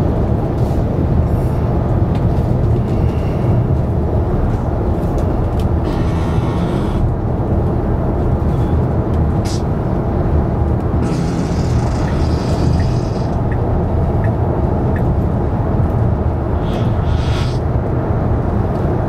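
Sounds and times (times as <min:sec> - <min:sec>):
road and tyre noise in car cabin: 0:00.0 - 0:19.0.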